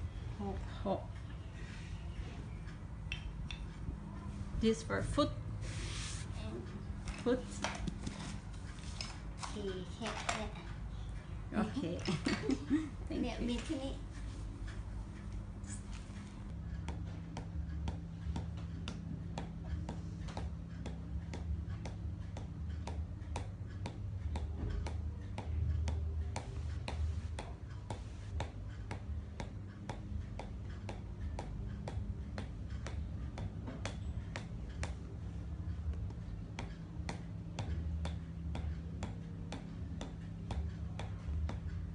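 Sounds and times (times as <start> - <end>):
hammer tapping wooden stick: 3.1 - 3.8, 16.8 - 35.2, 35.9 - 41.9.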